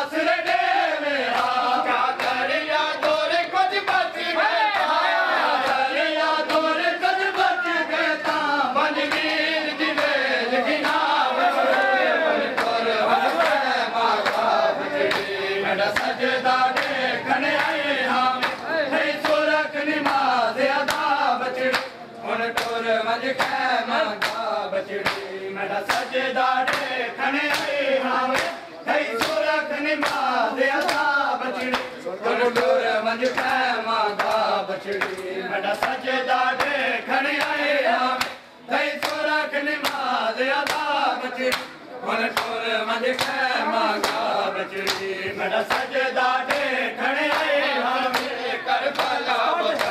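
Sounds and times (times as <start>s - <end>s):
men chanting in unison: 0.0s - 49.9s
hands slapping bare chests: 25.9s - 28.6s, 30.0s - 32.0s, 39.8s - 40.9s.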